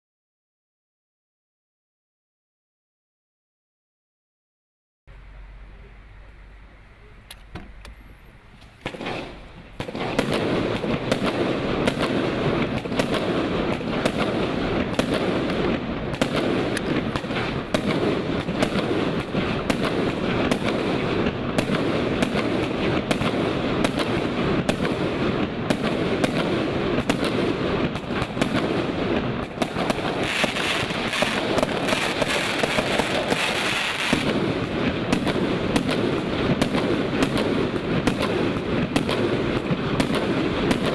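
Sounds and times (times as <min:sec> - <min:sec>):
fireworks hiss and crackle: 0:07.2 - 0:40.9
fireworks sharp reports: 0:08.6 - 0:40.9.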